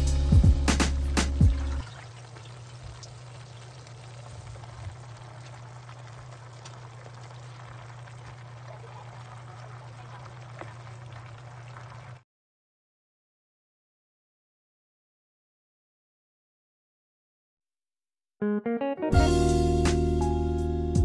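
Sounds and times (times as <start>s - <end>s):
broth bubbling in a pan: 1.4s - 12.2s
faint ticks of leaves in pan: 1.8s - 12.2s.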